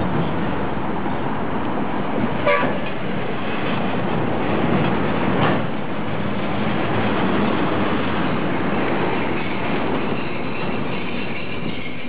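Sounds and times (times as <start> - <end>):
tram rolling: 0.0 - 12.0
tram signal toot: 2.4 - 2.9, 9.3 - 12.0.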